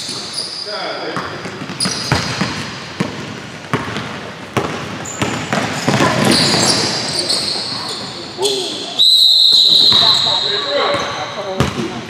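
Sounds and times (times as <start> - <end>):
basketball bouncing on hardwood floor: 1.2 - 6.9.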